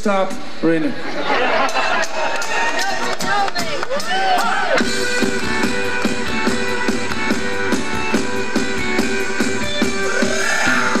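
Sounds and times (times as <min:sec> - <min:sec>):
live rock band playing: 0:02.5 - 0:11.0.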